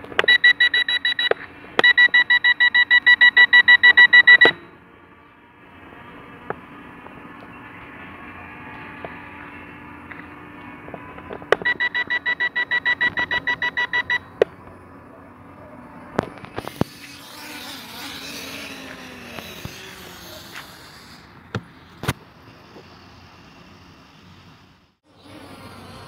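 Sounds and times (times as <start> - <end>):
rapid electronic warning beeps: 0.3 - 4.7, 11.6 - 14.3.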